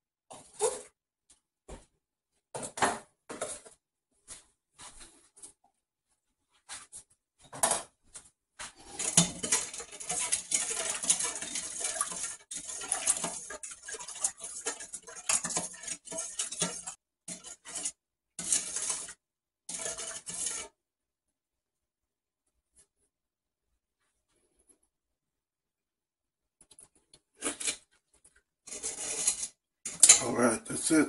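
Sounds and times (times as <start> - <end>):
metal spoon scraping a steel bowl: 8.8 - 20.8, 28.7 - 30.3.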